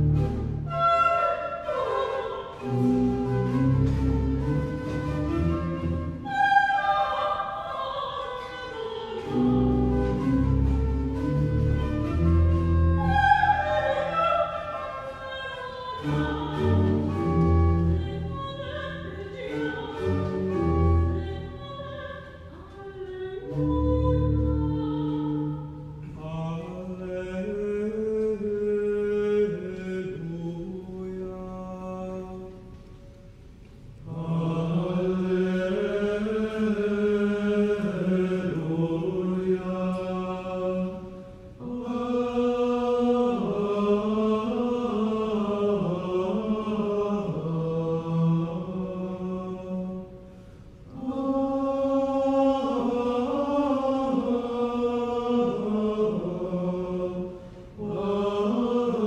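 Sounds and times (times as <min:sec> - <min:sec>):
male choir chanting: 0:34.1 - 0:50.0, 0:51.0 - 0:59.0.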